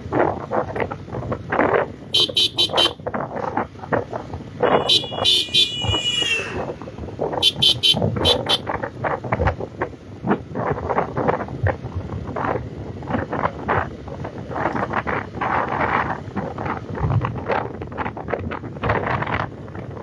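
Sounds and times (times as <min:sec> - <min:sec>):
wind buffeting microphone: 0:00.0 - 0:20.0
vehicle horns honking: 0:02.1 - 0:03.0, 0:04.6 - 0:08.7.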